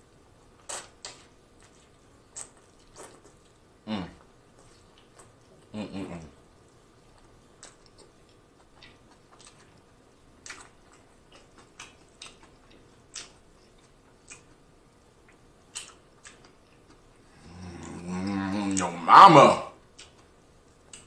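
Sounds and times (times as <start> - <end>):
wet chewing mouth clicks: 7.2 - 14.6, 15.2 - 17.1, 19.9 - 21.0.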